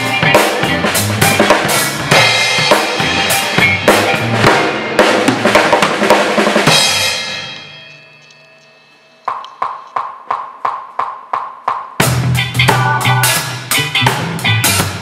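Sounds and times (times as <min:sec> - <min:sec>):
drum kit playing: 0:00.0 - 0:07.9, 0:09.2 - 0:15.0
backing track: 0:00.0 - 0:15.0
cymbals ringing: 0:06.6 - 0:11.0
count-in clicks: 0:07.5 - 0:11.6.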